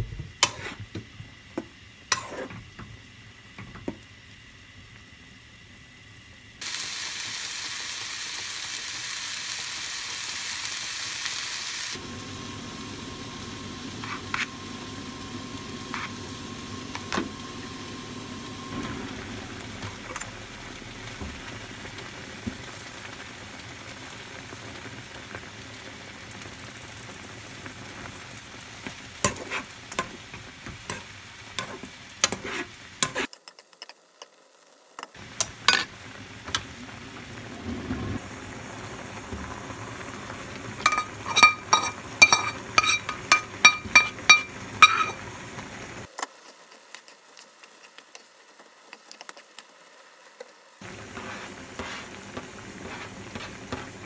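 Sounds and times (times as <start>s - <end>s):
food sizzling in a frying pan: 0.0s - 54.0s
spoon scraping a pan: 0.4s - 0.9s, 2.1s - 2.6s, 14.0s - 14.5s, 15.9s - 16.2s, 29.2s - 34.0s, 35.6s - 35.9s, 40.8s - 45.2s, 51.1s - 54.0s.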